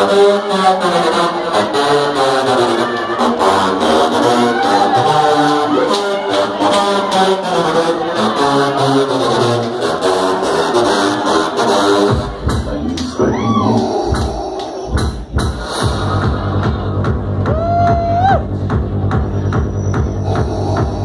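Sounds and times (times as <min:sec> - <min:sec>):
heavy kick and bass: 0:10.4 - 0:21.0.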